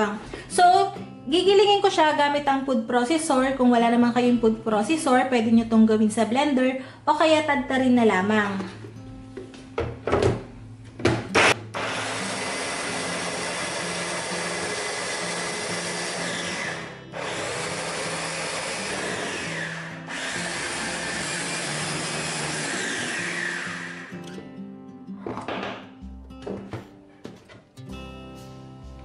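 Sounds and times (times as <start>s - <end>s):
food processor chopping garlic: 11.4s - 24.1s.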